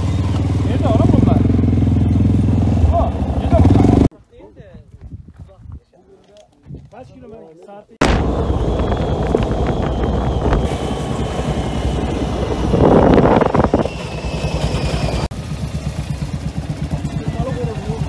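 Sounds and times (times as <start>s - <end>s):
quad bike engine running: 0.0s - 4.1s, 8.2s - 18.0s
quad bike engines idling: 0.0s - 4.1s, 9.1s - 18.0s.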